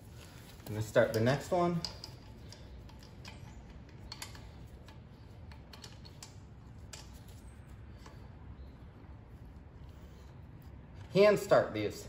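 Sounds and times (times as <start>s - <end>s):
bolt threading clicks: 1.1s - 7.3s.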